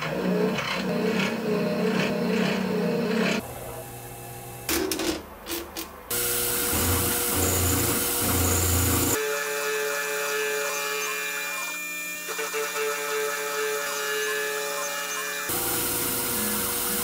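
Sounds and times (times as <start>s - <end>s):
milling machine cutting metal: 6.1s - 9.2s, 10.2s - 17.0s.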